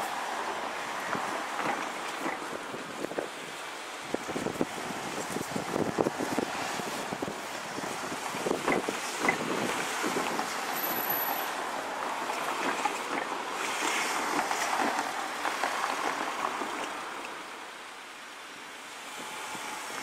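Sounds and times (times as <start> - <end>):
electric train running on track: 0.0 - 17.6, 19.0 - 20.0.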